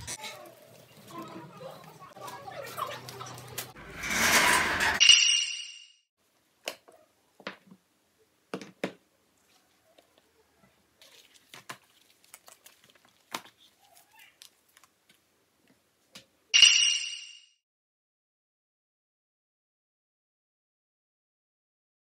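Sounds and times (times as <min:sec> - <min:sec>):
paper rustling: 0:11.0 - 0:15.0
short ding: 0:16.6 - 0:17.5.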